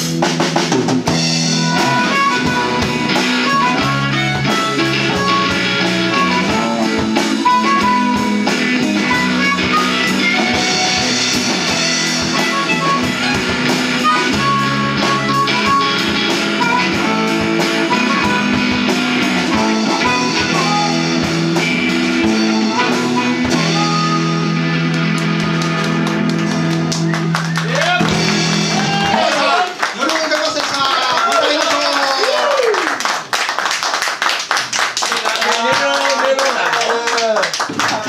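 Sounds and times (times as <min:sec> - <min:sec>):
electric bass: 0:00.0 - 0:29.6
drum kit: 0:00.0 - 0:29.8
electric guitar: 0:00.0 - 0:29.8
amplified harmonica: 0:01.2 - 0:27.3.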